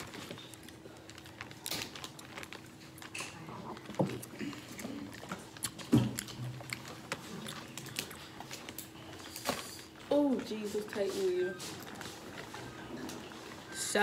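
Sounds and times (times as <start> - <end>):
shells crackling while peeled: 0.0 - 11.0
chewing: 0.0 - 13.9.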